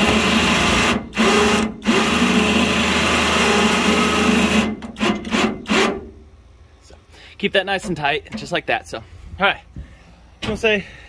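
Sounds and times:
electric winch motor running: 0.0 - 6.0.

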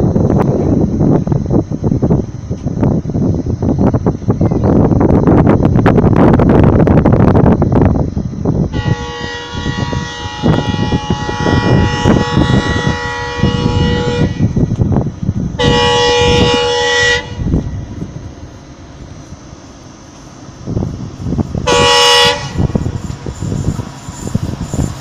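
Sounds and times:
loud low rumble: 0.0 - 25.0
diesel locomotive horn blasts: 8.7 - 14.8, 15.5 - 18.2, 21.6 - 25.0.

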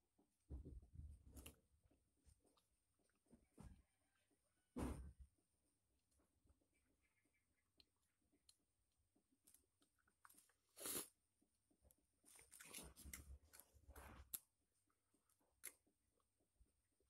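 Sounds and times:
chewing: 12.2 - 15.9.

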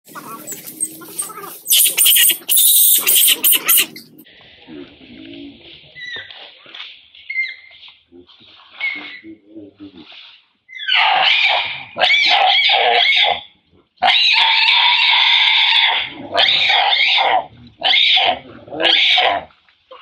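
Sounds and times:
monkey screaming: 0.1 - 4.2, 14.0 - 19.4.

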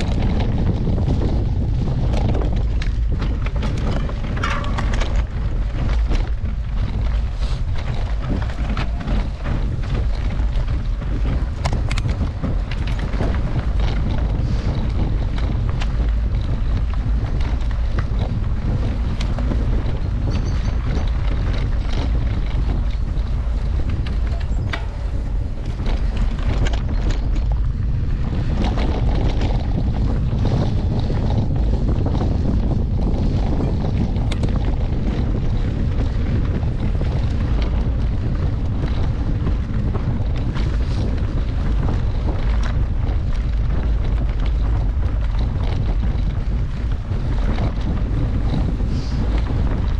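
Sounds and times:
bike clicks and rattles: 0.0 - 49.9
wind buffeting microphone: 0.0 - 49.9.

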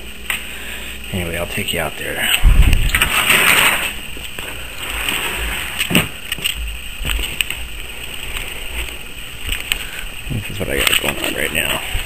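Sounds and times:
low rumble on microphone: 2.4 - 3.2
footsteps: 2.4 - 12.0.

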